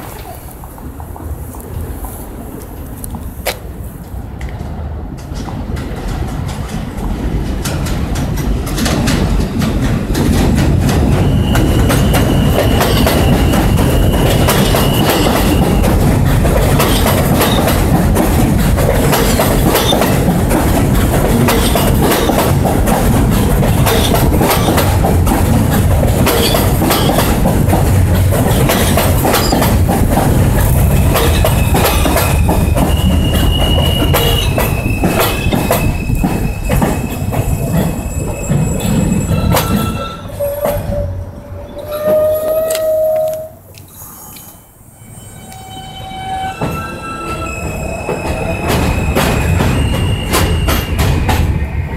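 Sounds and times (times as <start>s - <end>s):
subway train rumbling past: 0.0s - 51.9s
wheels clacking over rails: 5.1s - 41.0s
high wheel squeal: 11.2s - 15.9s, 30.9s - 51.0s.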